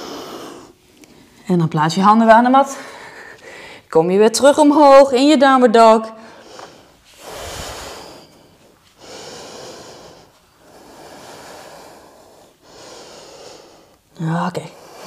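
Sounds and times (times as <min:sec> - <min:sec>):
woman breathing deeply: 0:00.0 - 0:01.4, 0:02.7 - 0:03.9, 0:06.2 - 0:14.1.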